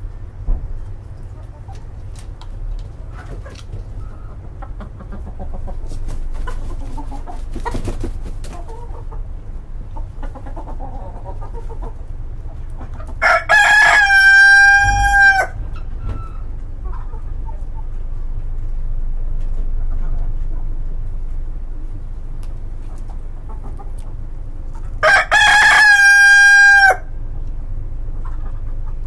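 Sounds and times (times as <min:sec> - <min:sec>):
chickens clucking: 0:00.1 - 0:29.0
rooster crowing: 0:13.2 - 0:15.6, 0:25.0 - 0:27.2.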